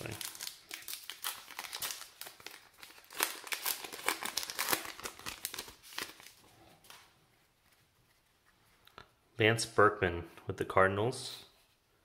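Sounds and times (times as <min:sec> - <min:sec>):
wrapper tearing and crinkling: 0:00.0 - 0:06.4.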